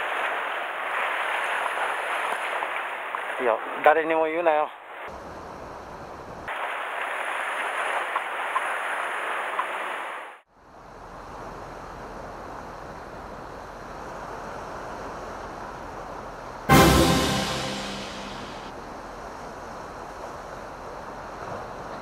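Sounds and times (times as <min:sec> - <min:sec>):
surf washing against rocks: 0:00.0 - 0:05.1, 0:06.5 - 0:10.4.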